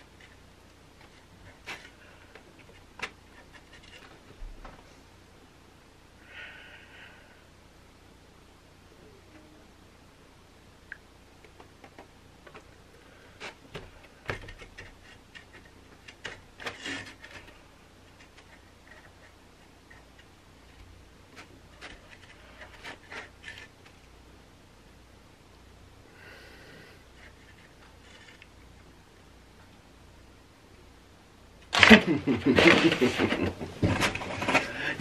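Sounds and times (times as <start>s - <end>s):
cardboard boxes being handled: 31.8s - 35.0s.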